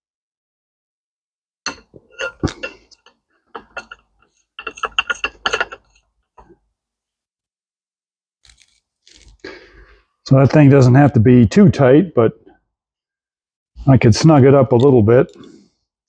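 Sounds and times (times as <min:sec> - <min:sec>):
metal parts clicking and clinking: 0:01.7 - 0:06.0.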